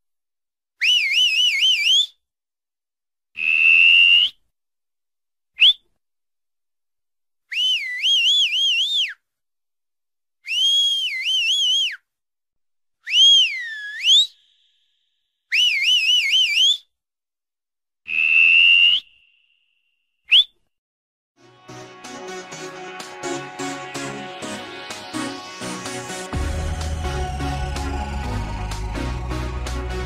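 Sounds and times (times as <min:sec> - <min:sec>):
person whistling: 0:00.8 - 0:02.2, 0:05.6 - 0:05.8, 0:07.5 - 0:09.2, 0:10.4 - 0:12.0, 0:13.0 - 0:14.6, 0:15.5 - 0:16.9, 0:18.1 - 0:19.2, 0:20.3 - 0:20.6
background music with a beat: 0:21.4 - 0:30.0.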